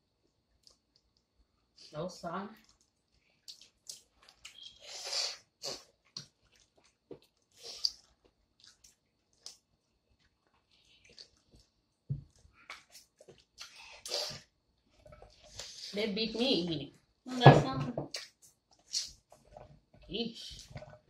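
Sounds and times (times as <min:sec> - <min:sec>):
chewing: 0:00.5 - 0:01.3, 0:02.6 - 0:14.1, 0:14.8 - 0:15.9, 0:18.1 - 0:21.0.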